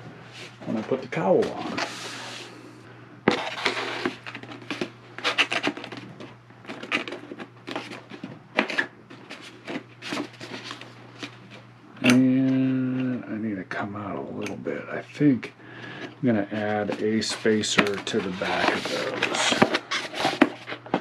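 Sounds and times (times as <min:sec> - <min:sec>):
plastic cowl scraping and clicking: 0:16.5 - 0:21.0.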